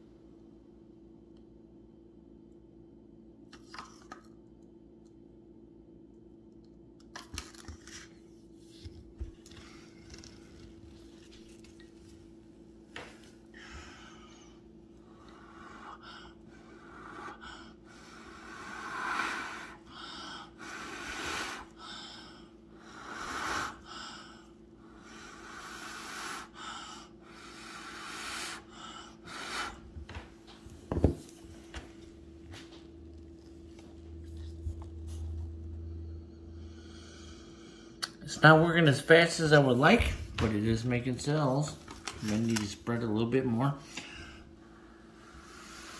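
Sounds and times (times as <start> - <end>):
person blowing out breaths: 13.5 - 30.0, 43.8 - 45.9.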